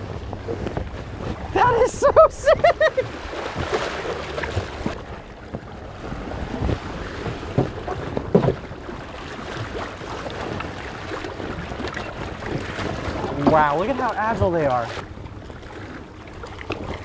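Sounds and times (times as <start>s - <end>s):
wind on microphone: 0.0s - 13.8s
boat engine idling: 0.0s - 17.0s
water splashing and slapping: 0.0s - 17.0s.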